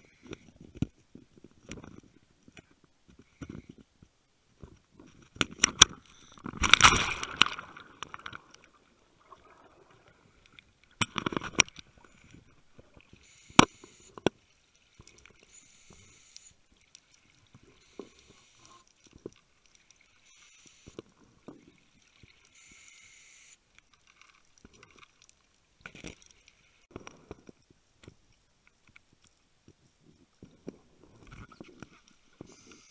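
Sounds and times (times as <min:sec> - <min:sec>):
knocks and clicks underwater: 0:00.2 - 0:14.4, 0:20.9 - 0:22.4, 0:25.8 - 0:32.6
watery rush: 0:06.6 - 0:10.5.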